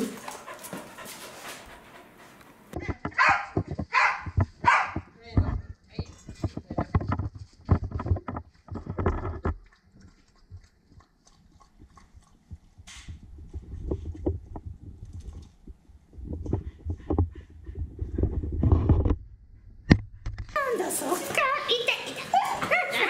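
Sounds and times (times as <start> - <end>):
dog panting: 0.0 - 2.8, 16.5 - 18.2
paws tapping on tile floor: 0.0 - 19.2
dog lapping water from bowl: 9.2 - 12.9.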